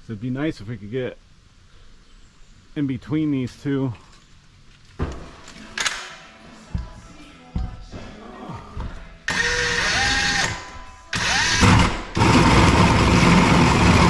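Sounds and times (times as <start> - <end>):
power drill motor whine: 9.3 - 14.0.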